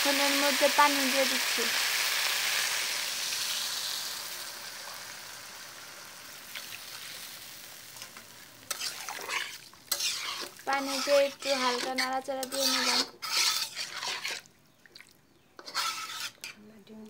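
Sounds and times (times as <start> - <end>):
water sizzling in hot wok: 0.0 - 14.4, 15.6 - 16.4
metal spatula scraping wok: 8.7 - 14.5, 15.6 - 16.6.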